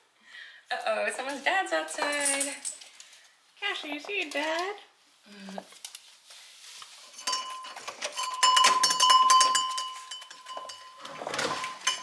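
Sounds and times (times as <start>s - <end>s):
small bell jingling: 7.2s - 12.0s.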